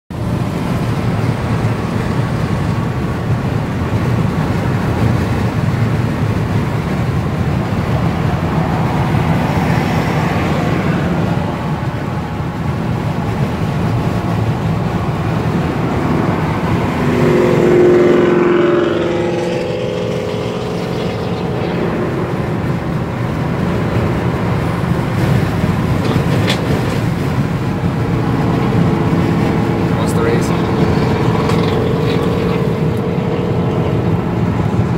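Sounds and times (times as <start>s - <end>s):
engine and tyre rumble: 0.1s - 34.9s
engine revving: 14.1s - 34.9s.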